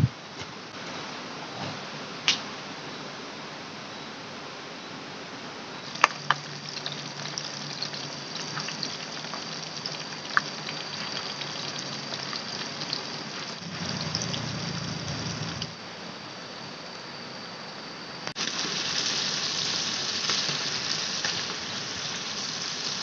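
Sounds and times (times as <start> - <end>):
food sizzling in hot oil: 5.8 - 15.8, 18.4 - 23.0
oil popping and cracking: 5.9 - 14.4.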